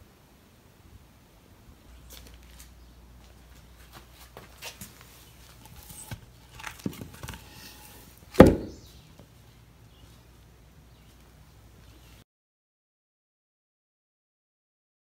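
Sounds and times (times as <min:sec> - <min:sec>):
wood knocking and scraping on concrete: 0:04.3 - 0:08.9
heavy wooden thud: 0:08.4 - 0:08.9.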